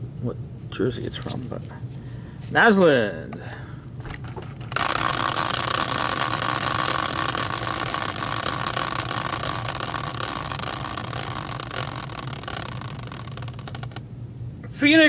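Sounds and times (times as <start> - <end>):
caster wheel whirring: 4.7 - 14.0.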